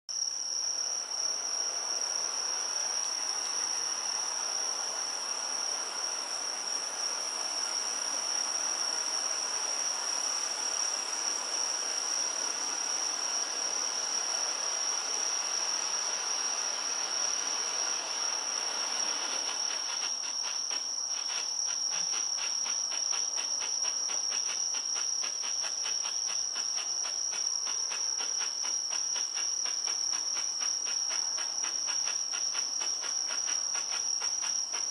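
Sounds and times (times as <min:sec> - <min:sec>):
insects chirring: 0:00.1 - 0:34.9
flare hissing: 0:14.2 - 0:34.9.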